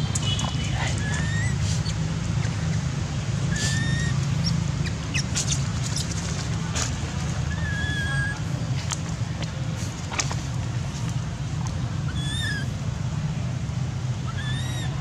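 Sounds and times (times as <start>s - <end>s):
whistled animal calls: 0.9s - 2.8s, 3.5s - 6.1s, 7.5s - 8.4s, 12.1s - 12.7s, 14.3s - 15.0s.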